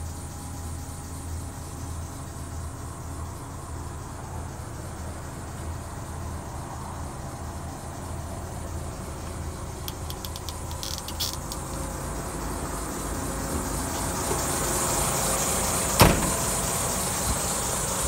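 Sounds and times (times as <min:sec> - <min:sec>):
diesel engine idling: 0:00.0 - 0:18.0
light clicks: 0:09.8 - 0:11.8
heavy thump: 0:16.0 - 0:16.6.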